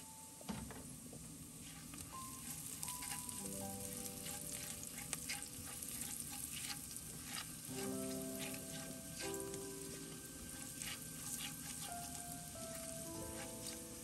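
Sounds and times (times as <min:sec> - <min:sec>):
onion sizzling in hot oil: 0:01.4 - 0:14.0
spatula stirring in pot: 0:01.5 - 0:14.0.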